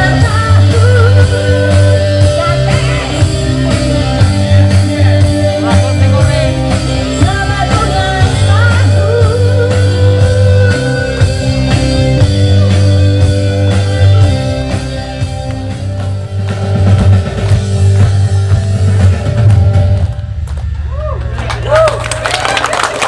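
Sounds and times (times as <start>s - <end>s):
woman singing: 0.0s - 11.7s
loud live band music: 0.0s - 21.9s.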